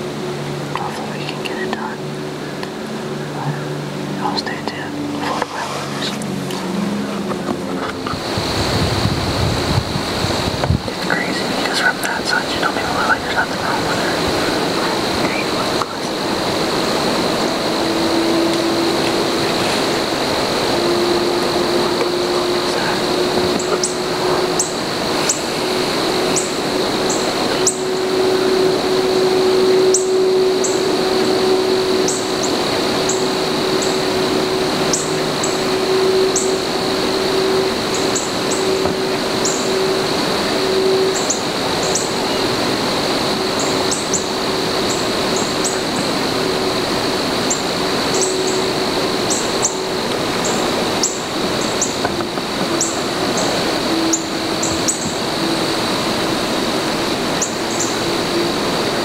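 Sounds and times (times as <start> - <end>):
high-pitched drone: 0.0 - 59.0
low hum and hiss: 0.0 - 59.0
very high chirps: 15.3 - 40.0.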